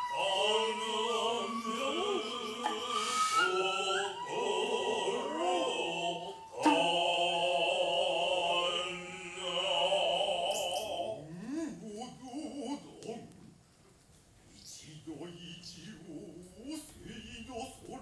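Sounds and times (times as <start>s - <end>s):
shrill flute: 0.0s - 8.9s, 10.4s - 11.1s
man chanting in held notes: 14.5s - 18.0s.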